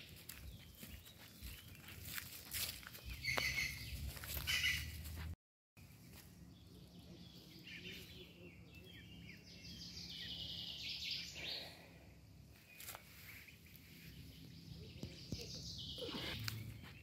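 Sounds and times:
birds chirping: 0.0 - 5.2, 5.8 - 17.0.

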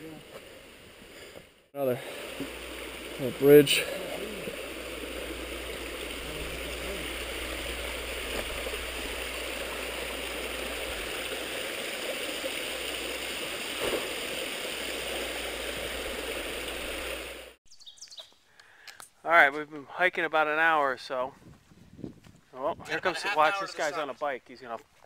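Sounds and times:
brook running over rocks: 0.0 - 17.6.

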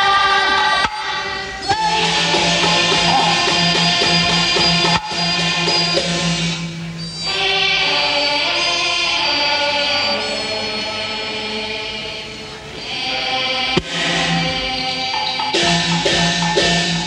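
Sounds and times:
opera singing: 0.0 - 6.0, 7.2 - 15.6.

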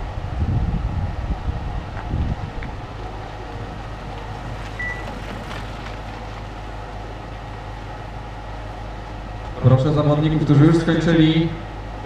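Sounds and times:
low even hum: 0.0 - 12.0
short high beep: 4.8 - 5.0.

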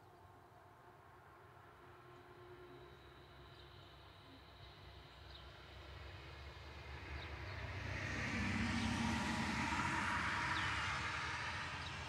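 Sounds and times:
vehicle passing: 7.1 - 12.0.

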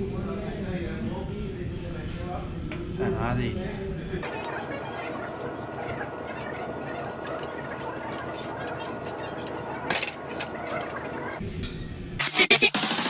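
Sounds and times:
gym room hum: 0.0 - 12.1.

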